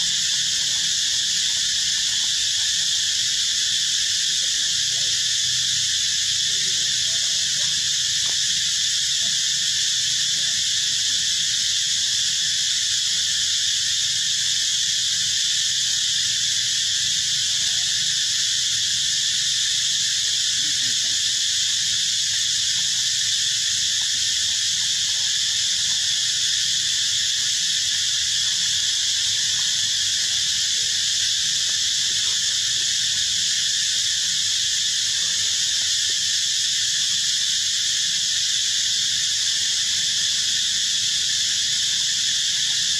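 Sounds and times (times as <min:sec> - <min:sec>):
high-pitched insect chorus: 0:00.0 - 0:42.9.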